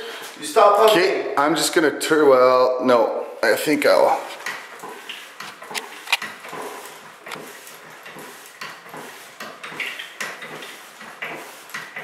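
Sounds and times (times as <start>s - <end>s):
hand pump clicking and knocking: 4.3s - 12.0s.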